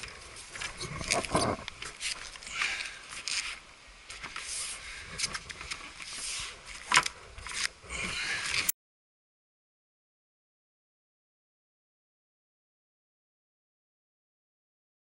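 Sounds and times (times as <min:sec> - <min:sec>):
paddleboard scraping and rustling: 0:00.0 - 0:08.7.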